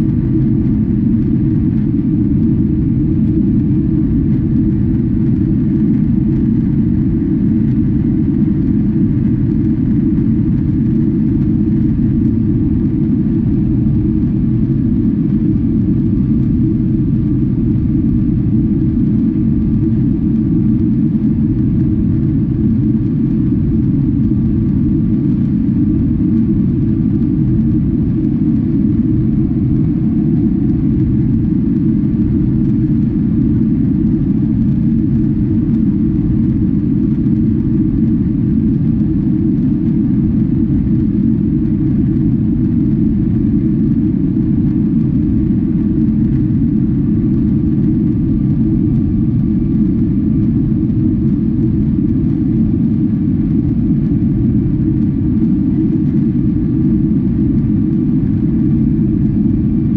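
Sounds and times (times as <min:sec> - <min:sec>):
airliner cabin engine roar: 0:00.0 - 0:59.9.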